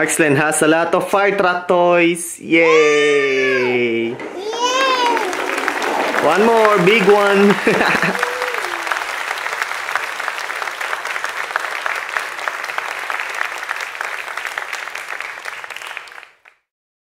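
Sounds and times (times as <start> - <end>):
crowd applause: 4.3 - 16.6.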